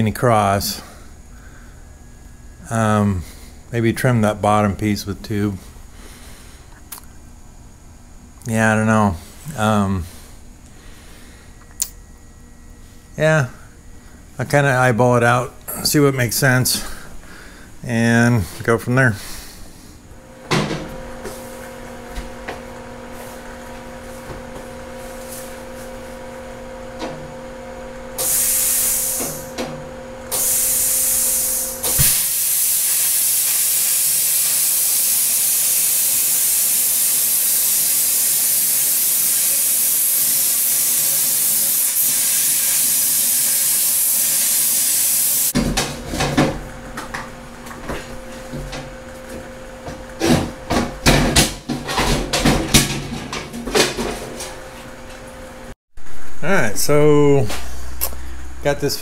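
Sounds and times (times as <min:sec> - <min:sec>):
air blasts hissing: 0:28.1 - 0:45.6
plasma cutter hissing: 0:28.2 - 0:29.5, 0:30.3 - 0:45.6
metal clanking and knocking: 0:50.2 - 0:54.5.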